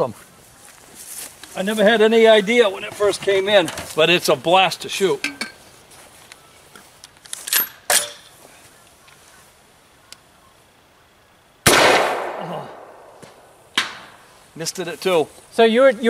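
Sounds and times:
loud gunshot: 11.6 - 14.1.

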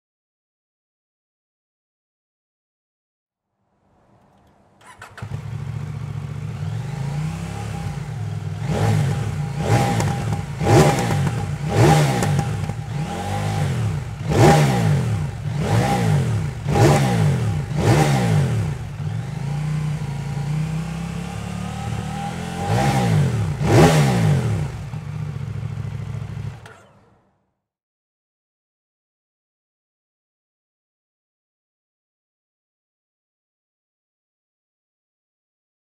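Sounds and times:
motorcycle engine idling and revving: 4.4 - 27.4.

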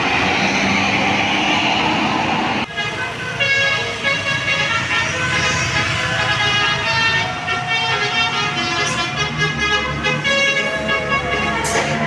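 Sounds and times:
bus engine running: 0.0 - 12.0
multi-tone air horn melody: 2.7 - 12.0.

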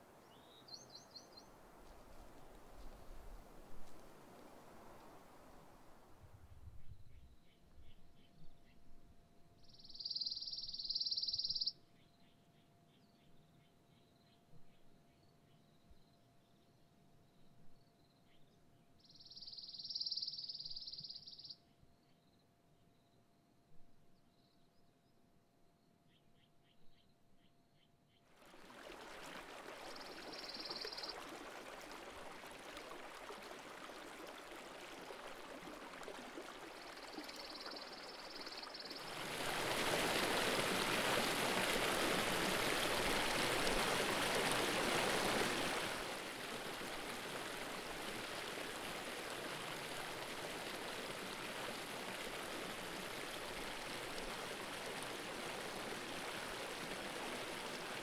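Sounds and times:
small cascade splashing: 28.3 - 58.0
stream running over rocks: 28.3 - 58.0.

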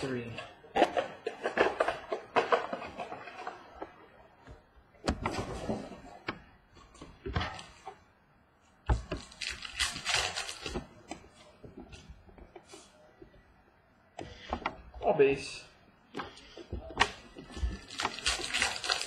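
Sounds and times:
card packs rustling and crinkling: 17.0 - 19.0.

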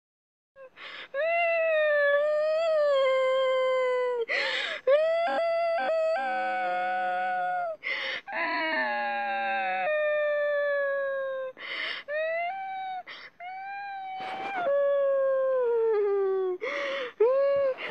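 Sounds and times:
boy wailing: 1.4 - 17.9
sharp gasping breaths: 4.3 - 4.8, 7.8 - 8.3, 11.6 - 12.1, 16.6 - 17.2.

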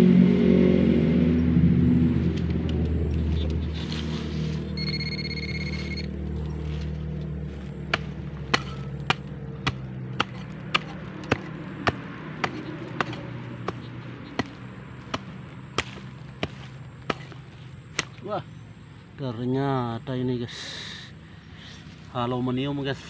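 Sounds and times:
low steady hum: 0.0 - 23.0
hand tool chopping into soil: 7.8 - 18.3.

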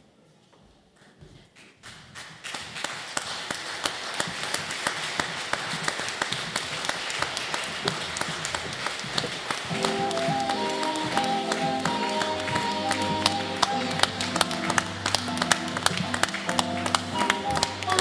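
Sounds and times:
audience applause: 1.9 - 18.0
music with held notes: 9.7 - 18.0.

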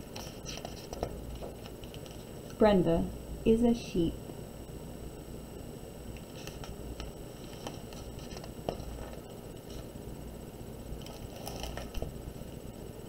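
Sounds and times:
book pages turning: 0.0 - 2.3, 6.2 - 9.9, 11.0 - 12.2.

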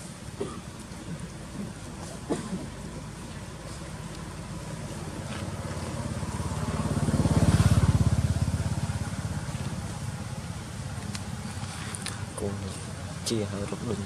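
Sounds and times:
vehicle engine passing by: 3.7 - 12.0.

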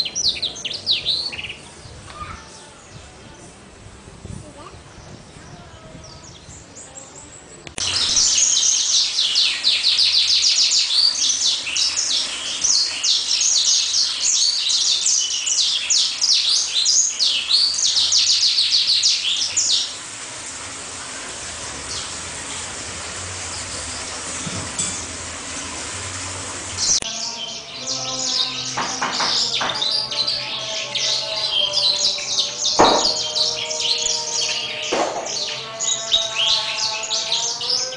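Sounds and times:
songbird singing fast trills: 0.0 - 3.0, 6.0 - 20.0
faint background noise: 0.0 - 19.1.

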